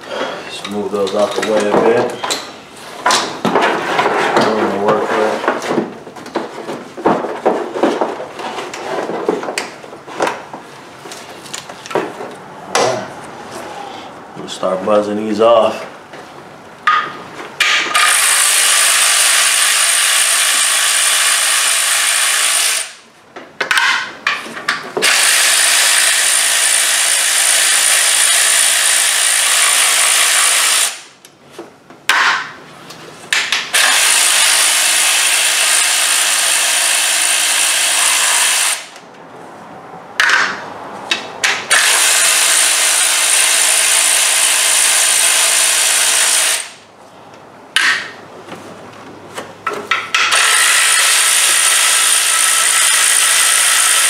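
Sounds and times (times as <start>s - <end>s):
power ratchet whining: 17.9s - 23.0s, 25.0s - 31.0s, 33.7s - 39.0s, 41.6s - 46.8s, 50.3s - 54.0s.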